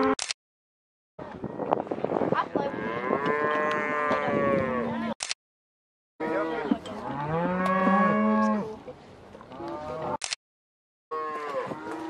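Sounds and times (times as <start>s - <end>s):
cattle mooing: 2.6s - 5.2s, 6.2s - 8.7s, 11.1s - 12.0s.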